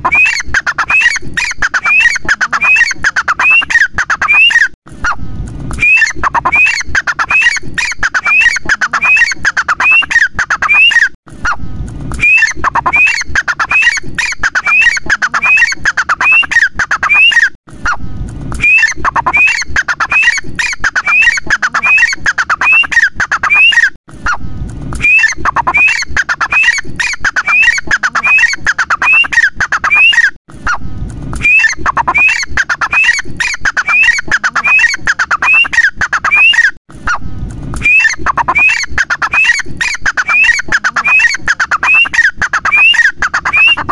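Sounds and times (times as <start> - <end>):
francolin calling: 37.8 - 39.6, 40.2 - 43.9.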